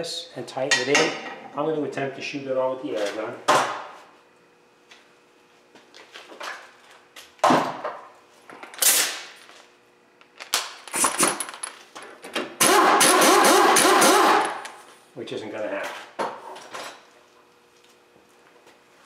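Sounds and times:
impact wrench hammering: 12.6s - 14.8s.

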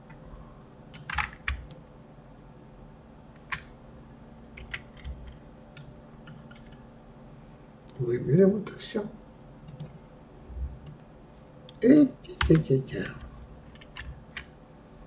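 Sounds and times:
faint steady hum: 0.0s - 15.0s
keyboard and mouse clicks: 1.0s - 1.8s, 3.4s - 3.7s, 4.6s - 6.8s, 9.7s - 9.9s, 12.4s - 12.7s, 13.7s - 14.5s.

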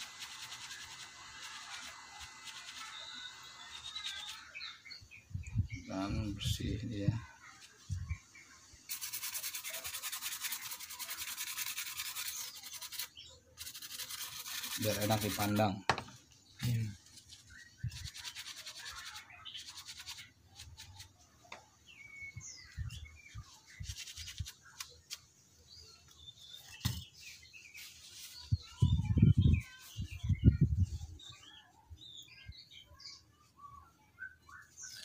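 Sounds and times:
tissue rubbing circuit board: 0.0s - 4.6s, 8.9s - 15.7s
small birds chirping: 0.0s - 35.0s.

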